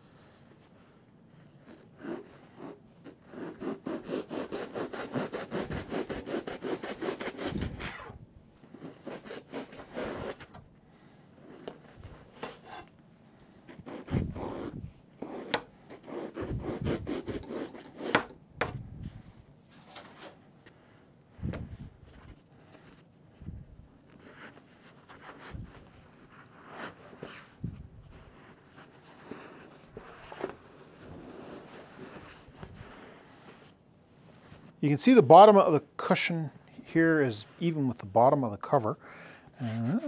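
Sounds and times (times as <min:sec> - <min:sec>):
knife sawing through foam: 0:01.8 - 0:08.1, 0:08.7 - 0:10.4, 0:13.7 - 0:18.3.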